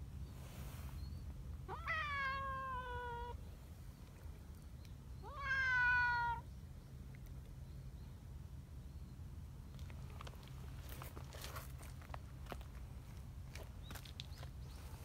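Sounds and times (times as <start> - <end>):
cat meowing: 1.7 - 3.4, 5.2 - 6.4.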